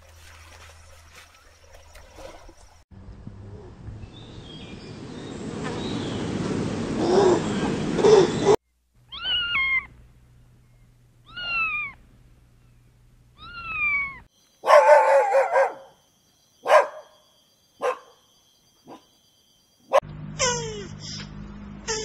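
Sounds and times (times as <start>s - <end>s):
low hum: 2.4s - 14.3s, 20.0s - 22.0s
kitten meowing: 9.1s - 9.9s, 11.2s - 12.0s, 13.4s - 14.2s.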